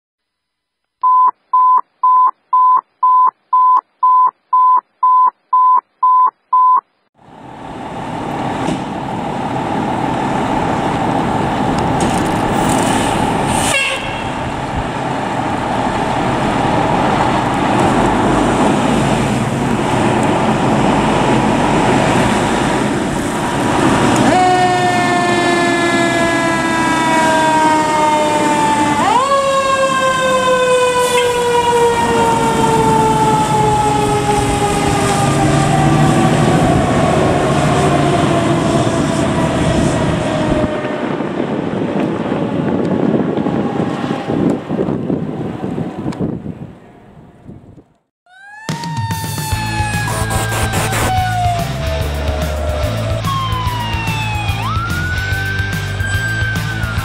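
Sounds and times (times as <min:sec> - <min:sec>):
short electronic beeps: 0:01.0 - 0:06.9
fire truck engine: 0:07.2 - 0:47.2, 0:48.4 - 0:57.0
mechanical siren winding: 0:49.8 - 0:51.4.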